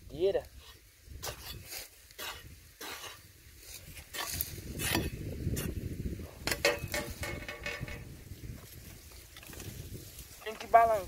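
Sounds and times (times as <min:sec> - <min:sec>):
hoe chopping into dry soil: 0:01.2 - 0:08.2.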